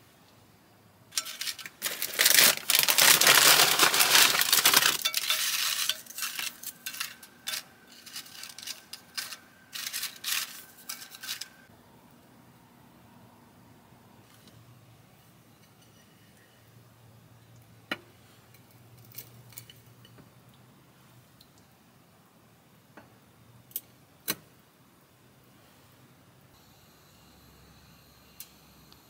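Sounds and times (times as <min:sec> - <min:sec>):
chips rattling into glass dish: 0:01.2 - 0:11.6
plastic bag crinkling: 0:01.2 - 0:11.7.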